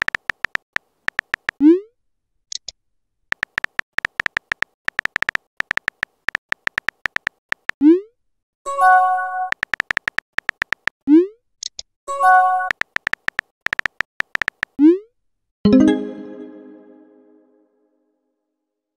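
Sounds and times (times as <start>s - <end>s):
keyboard typing beeps: 0.0s - 1.6s, 3.3s - 7.6s, 8.7s - 10.9s, 12.1s - 14.8s.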